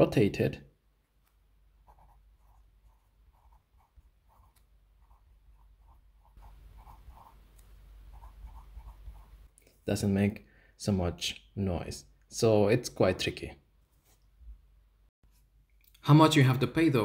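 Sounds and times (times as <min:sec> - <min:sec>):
pencil scratching on paper: 0:01.8 - 0:09.6.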